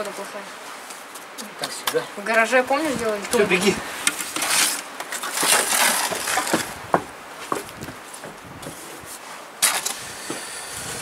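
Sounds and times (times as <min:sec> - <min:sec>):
bricks and mortar scraping: 0:03.0 - 0:11.0.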